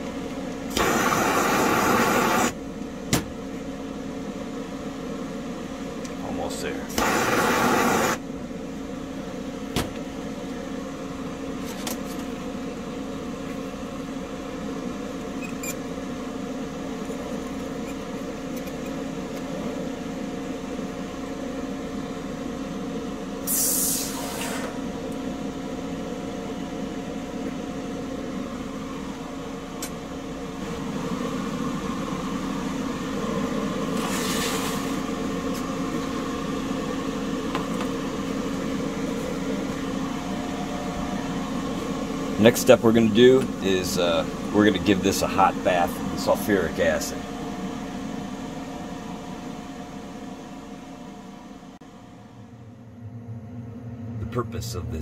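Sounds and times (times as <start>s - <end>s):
machine hum with fixed tones: 0.0s - 55.0s
short hisses: 23.5s - 24.7s.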